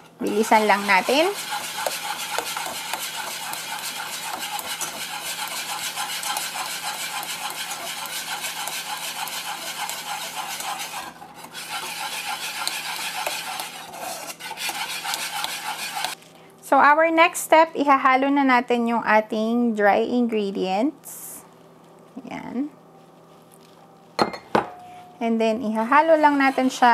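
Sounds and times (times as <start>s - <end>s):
wire whisk scraping saucepan: 0.0s - 16.2s, 25.6s - 26.9s.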